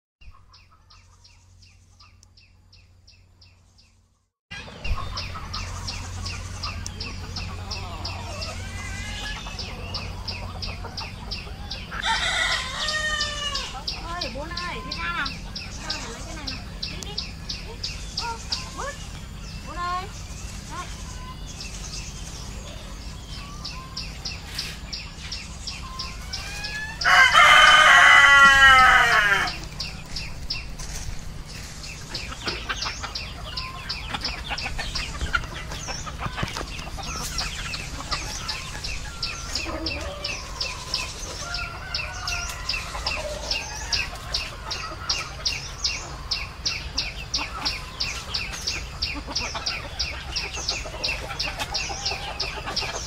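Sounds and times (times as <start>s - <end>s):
chickens clucking: 0.2s - 53.0s
rooster crowing: 11.9s - 13.9s, 26.2s - 29.7s, 38.5s - 44.2s.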